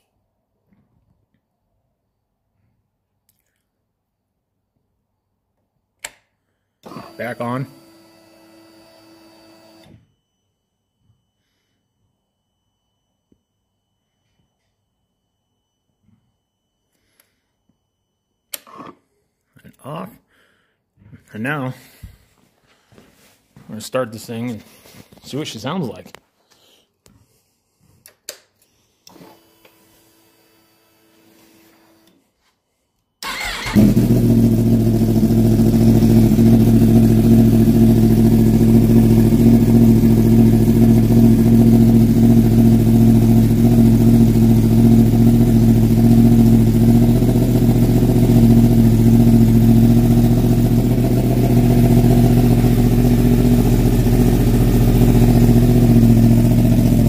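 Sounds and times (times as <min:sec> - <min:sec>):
motorcycle engine cranking: 0:33.2 - 0:35.1
motorcycle engine idling: 0:33.2 - 0:57.0.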